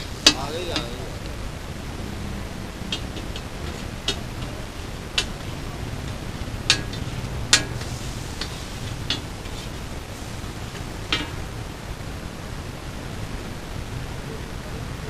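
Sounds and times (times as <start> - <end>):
spatula striking metal griddle: 0.0 - 1.0, 2.9 - 11.6
steady hiss: 0.0 - 15.0.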